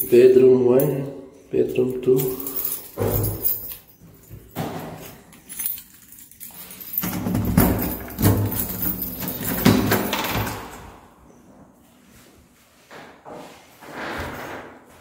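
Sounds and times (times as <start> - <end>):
keys jangling: 1.7 - 10.7.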